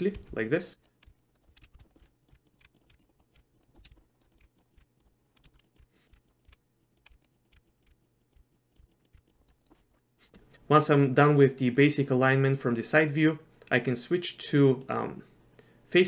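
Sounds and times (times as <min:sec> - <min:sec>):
keyboard and mouse clicking: 0:00.0 - 0:10.6, 0:14.8 - 0:15.1.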